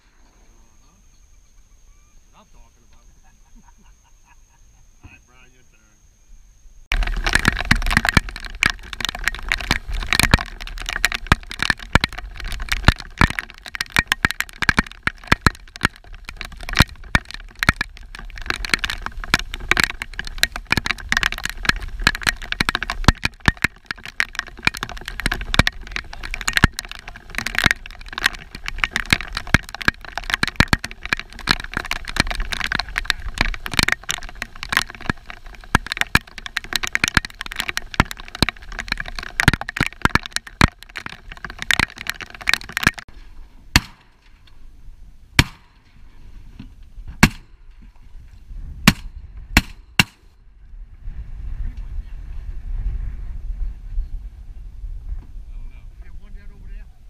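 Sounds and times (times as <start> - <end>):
rain pattering: 6.9 - 43.1.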